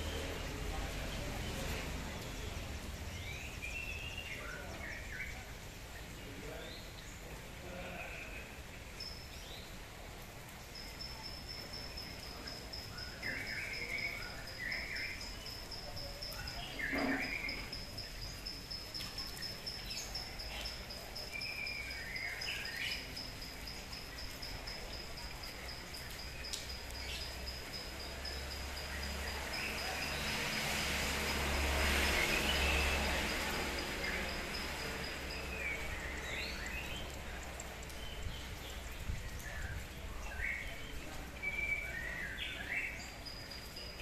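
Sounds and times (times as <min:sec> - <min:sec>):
rain falling: 0:00.0 - 0:44.0
birds chirping: 0:07.7 - 0:44.0
high-pitched insect trill: 0:09.0 - 0:09.4, 0:10.7 - 0:36.7, 0:43.0 - 0:44.0.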